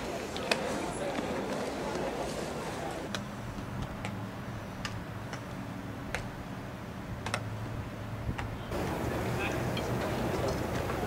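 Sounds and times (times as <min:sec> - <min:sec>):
steady low hum: 0:03.1 - 0:11.0
balls smacking into gloves: 0:07.2 - 0:07.5.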